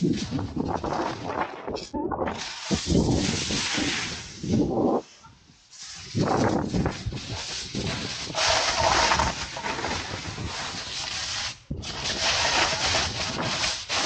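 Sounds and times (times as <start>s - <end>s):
snowboard scraping on snow: 2.4s - 5.0s, 5.7s - 14.0s.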